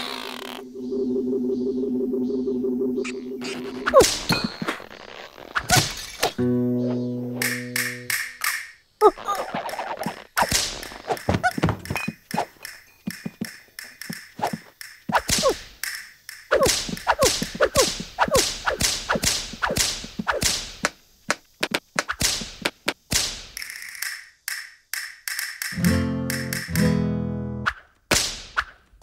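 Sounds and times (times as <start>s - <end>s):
cartoon whacks and thunks: 5.6s - 6.0s, 14.4s - 15.7s, 16.5s - 20.9s, 21.6s - 23.5s, 27.7s - 28.8s.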